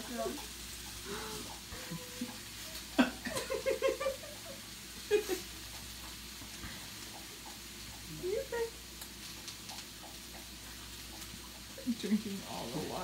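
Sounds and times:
person laughing: 1.7 - 2.3, 2.9 - 5.5.

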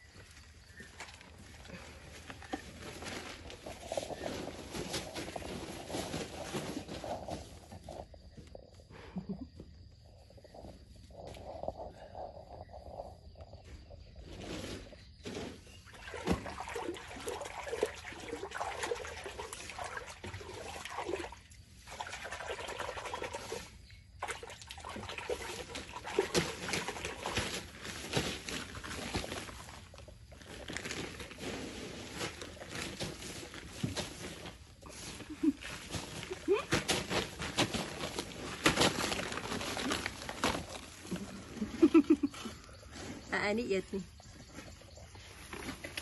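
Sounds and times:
plastic bag rustling and crinkling: 0.0 - 8.1, 26.3 - 42.1.

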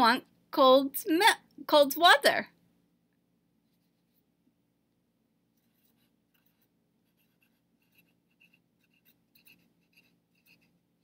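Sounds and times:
marker writing on paper: 5.6 - 10.8.

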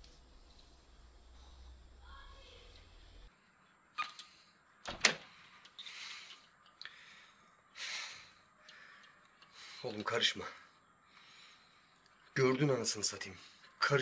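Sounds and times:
door latch click: 4.8 - 5.2.

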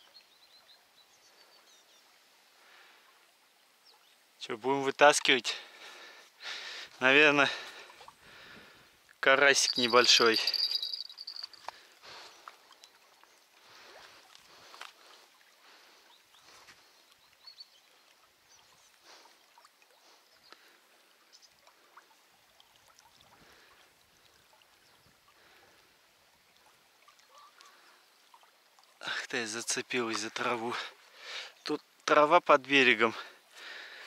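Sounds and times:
soft rustles and ticks: 5.0 - 5.5, 9.0 - 15.4.

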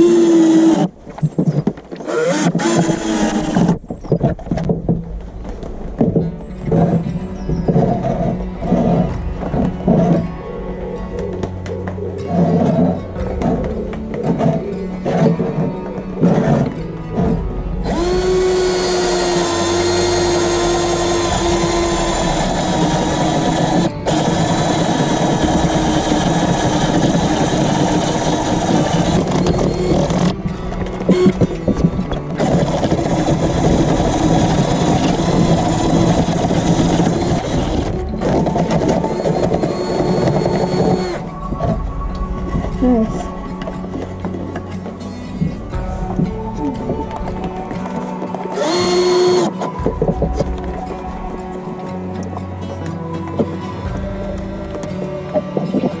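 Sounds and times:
cordless drill driving screws: 2.0 - 3.8, 17.9 - 30.4, 32.3 - 41.2, 48.5 - 49.8.

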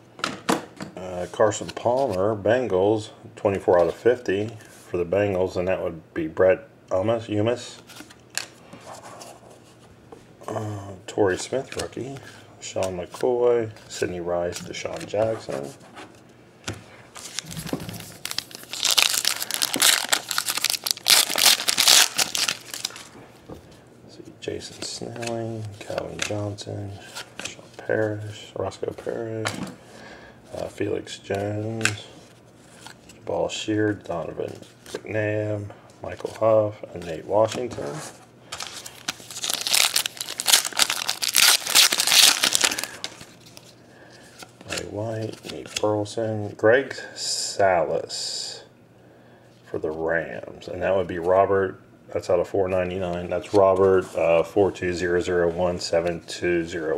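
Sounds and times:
foil wrapper tearing and crinkling: 17.2 - 23.1, 38.6 - 43.1.

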